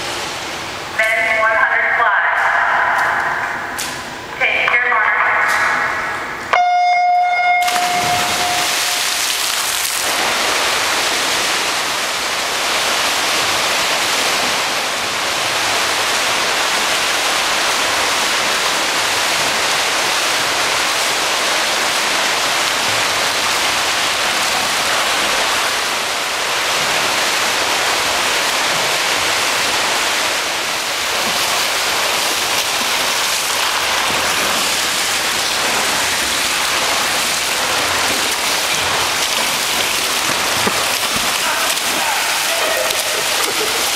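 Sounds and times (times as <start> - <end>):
swimmers splashing: 0.0 - 43.9
electronic start tone: 6.6 - 9.1.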